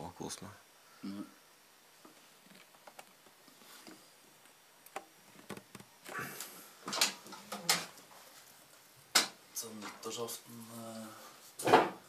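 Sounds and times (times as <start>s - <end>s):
clicks and knocks of objects handled: 6.8s - 8.1s, 9.1s - 10.1s.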